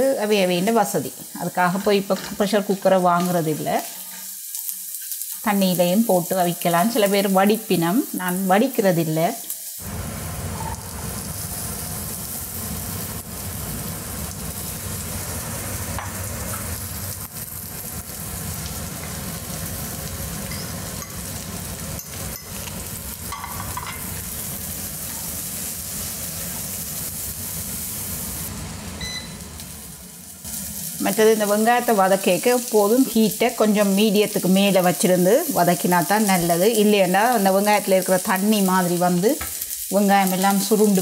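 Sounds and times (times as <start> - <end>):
onions sizzling in oil: 0.0 - 41.0
spoon tapping pan: 20.4 - 21.3, 21.9 - 24.2.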